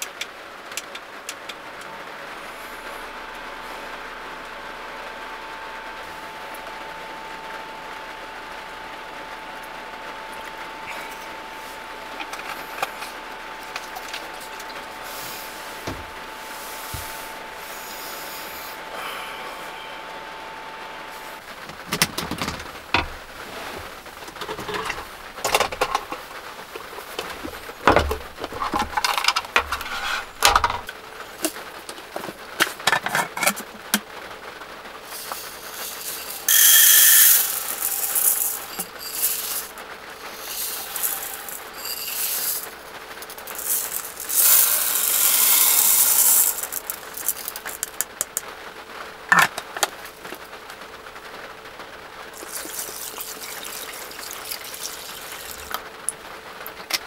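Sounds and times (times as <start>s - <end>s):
handling clicks and knocks: 21.6s - 34.1s
rice grains pouring into pot: 35.0s - 48.3s, 52.3s - 55.8s.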